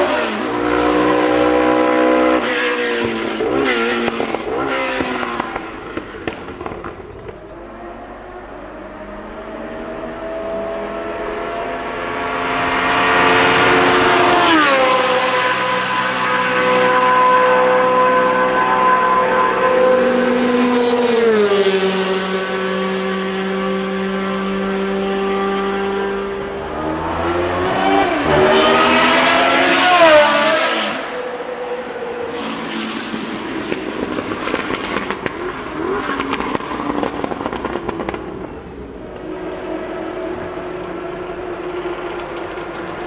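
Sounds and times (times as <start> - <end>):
racing car engine revving: 0.0 - 43.0
engine popping and crackling: 3.0 - 9.5, 32.4 - 43.0.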